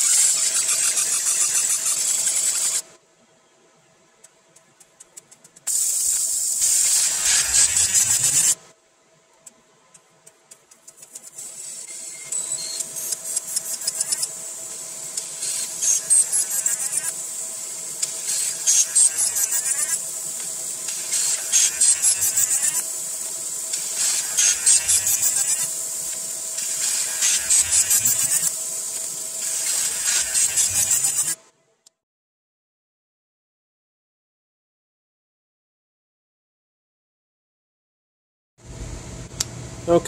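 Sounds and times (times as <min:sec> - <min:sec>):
laser crackling buzz: 0:04.8 - 0:08.6, 0:10.9 - 0:31.4
steady machine hum: 0:38.6 - 0:40.0.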